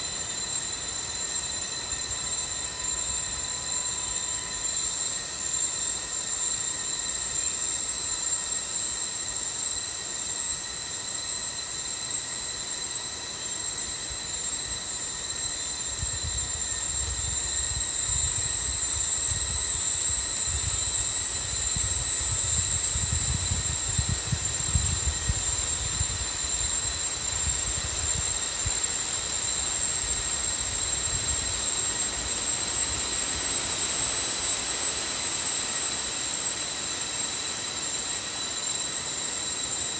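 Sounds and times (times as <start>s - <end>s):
high-pitched insect drone: 0.0s - 39.9s.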